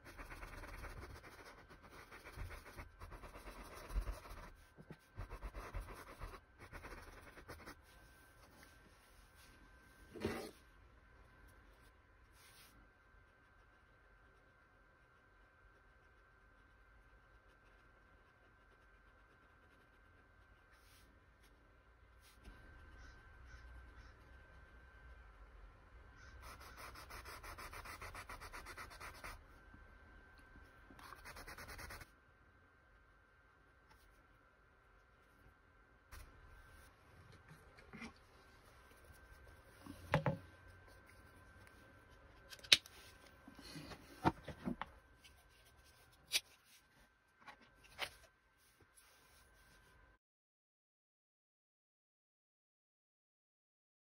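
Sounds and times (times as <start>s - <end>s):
paintbrush scratching on canvas: 0.0s - 7.9s, 26.4s - 29.4s.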